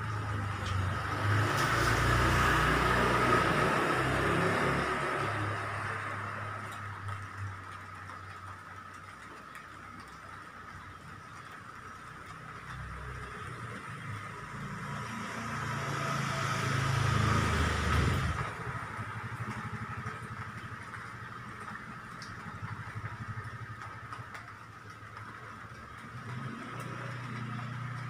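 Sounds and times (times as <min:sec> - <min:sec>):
vehicle engine driving past: 0:00.1 - 0:07.2, 0:12.6 - 0:24.4, 0:26.0 - 0:28.0.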